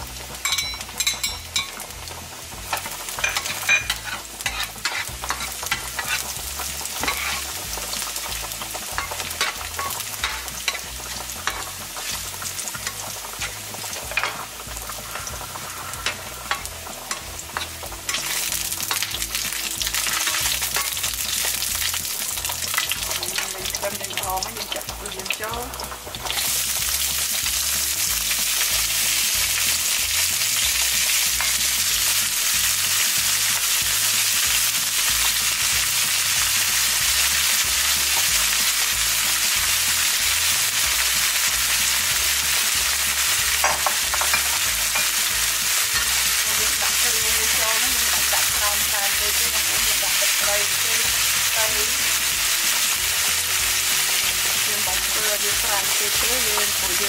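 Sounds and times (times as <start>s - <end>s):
shrimp sizzling in oil: 0.0s - 57.0s
metal spatula stirring: 0.4s - 23.9s, 30.7s - 32.0s, 43.5s - 47.0s.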